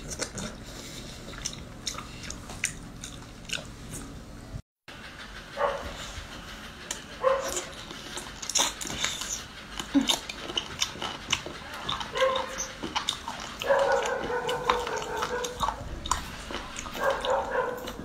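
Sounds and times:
wet chewing and mouth clicks: 0.0s - 4.1s, 6.9s - 18.0s.

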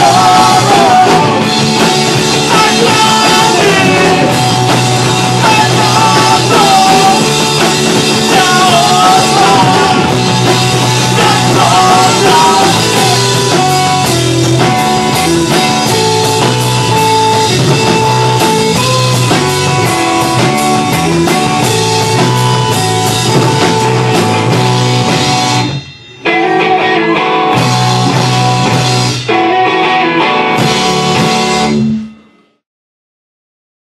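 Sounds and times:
person singing: 0.0s - 14.8s, 26.2s - 27.5s
rock band playing live: 0.0s - 32.6s.

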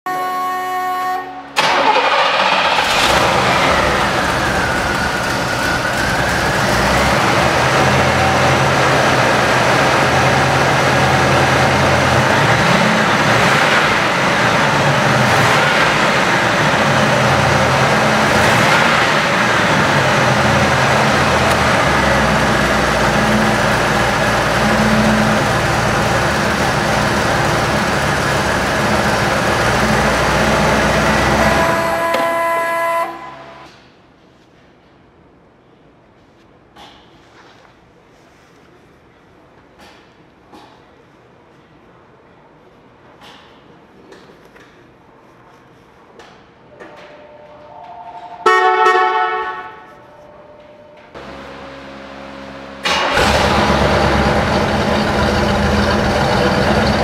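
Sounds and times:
engine starting and idling: 1.6s - 32.0s, 51.2s - 57.0s
engine throttle blips: 1.6s - 33.7s, 46.7s - 57.0s.

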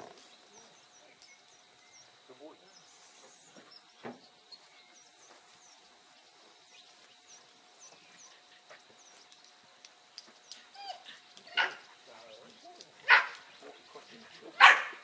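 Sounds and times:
faint high bird chirps: 0.2s - 8.4s
dog yelping: 10.7s - 11.8s, 13.0s - 13.4s, 14.6s - 15.0s
dog barking loudly: 11.5s - 11.8s, 13.0s - 13.5s, 14.5s - 15.0s.

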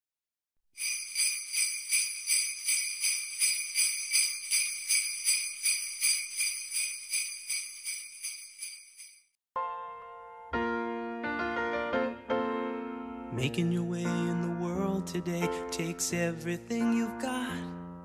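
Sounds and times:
jingle bells shaken: 0.8s - 9.3s.

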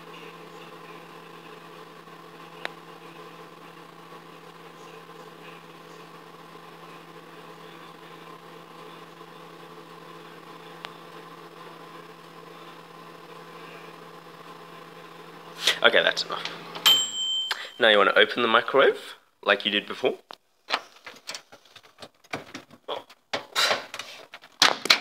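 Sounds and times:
microwave oven humming: 0.0s - 18.9s.

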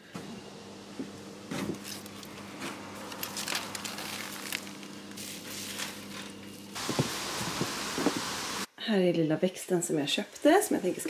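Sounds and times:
low electrical hum: 0.0s - 11.0s
goods being handled: 1.6s - 7.1s.

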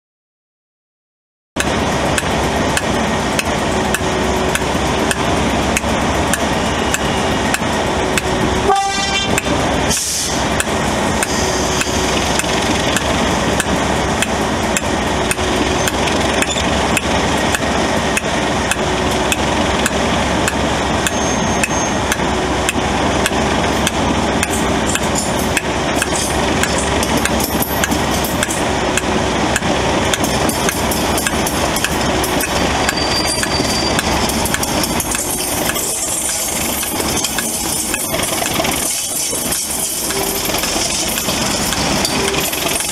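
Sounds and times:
diesel locomotive engine running: 1.6s - 42.9s
wheels clattering on track: 1.6s - 42.9s
short high-pitched note: 8.6s - 10.3s.

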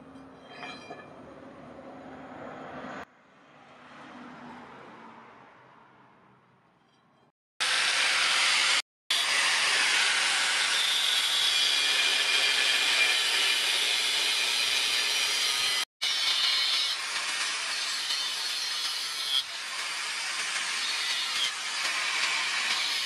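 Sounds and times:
angle grinder cutting steel: 7.6s - 23.0s.

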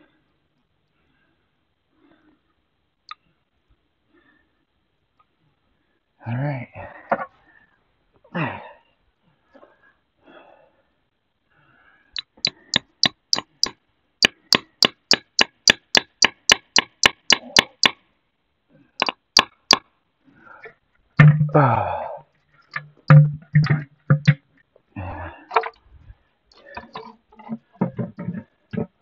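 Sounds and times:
sharp knocks: 12.3s - 18.0s, 21.2s - 21.6s, 22.8s - 24.4s, 27.8s - 29.0s.

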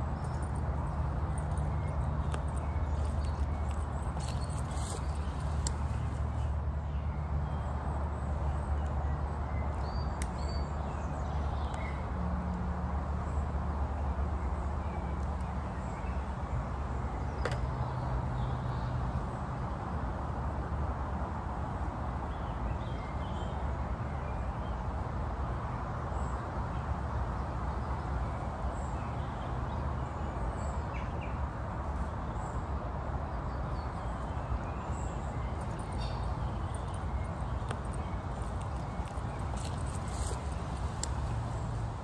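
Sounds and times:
small birds chirping: 22.2s - 42.0s.

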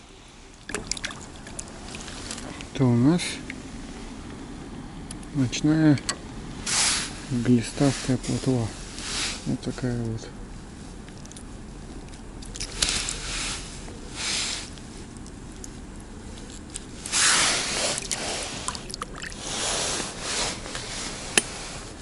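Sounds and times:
water sloshing and splashing: 0.5s - 2.8s, 12.2s - 21.2s.

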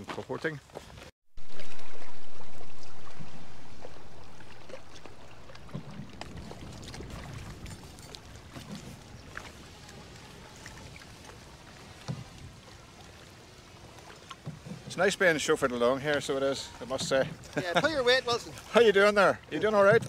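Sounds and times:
water lapping along hull: 0.0s - 20.0s
paddle splashes: 0.6s - 20.0s
loud rush of noise: 1.4s - 9.5s.

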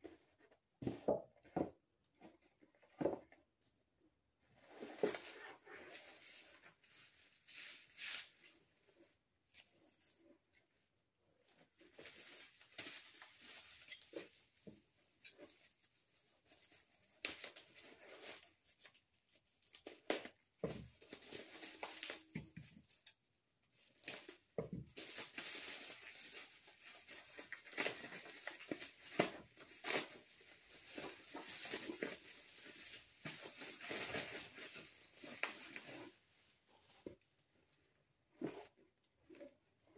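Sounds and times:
bubble wrap crinkling: 11.6s - 23.0s, 23.7s - 36.9s.

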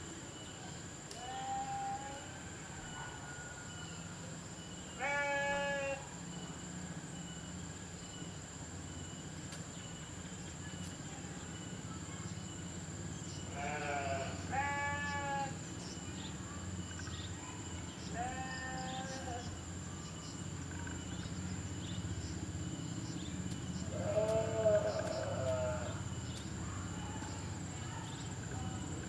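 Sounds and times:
livestock bleating: 5.0s - 6.0s, 13.5s - 15.6s, 18.1s - 19.4s, 23.9s - 26.0s.

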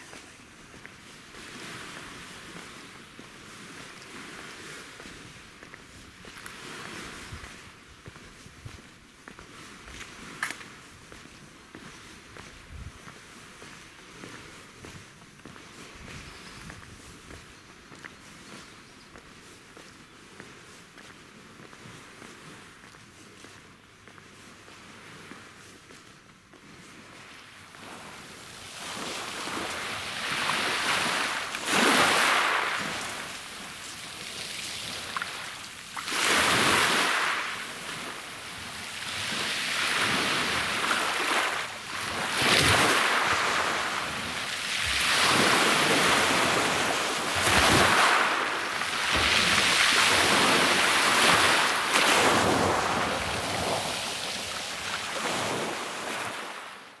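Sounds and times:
waves washing over pebbles: 27.7s - 56.9s.

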